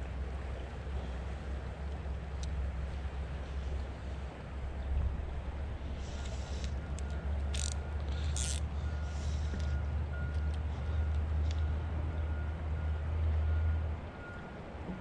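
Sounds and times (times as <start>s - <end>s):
heavy vehicle engine rumbling: 0.0s - 15.0s
short hisses: 5.9s - 6.8s.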